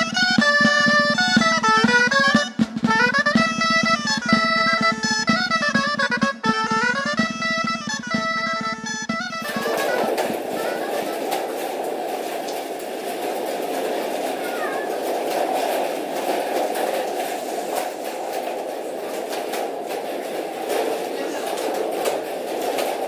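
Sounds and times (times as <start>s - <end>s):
friction drums rasping: 9.4s - 23.0s.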